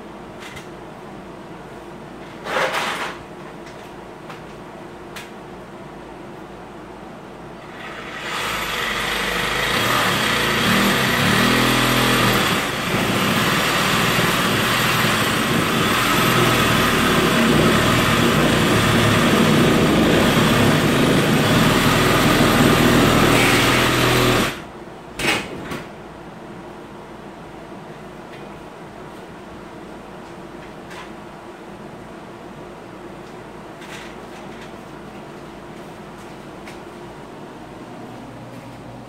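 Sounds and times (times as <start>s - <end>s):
reciprocating saw cutting wall: 7.7s - 24.7s.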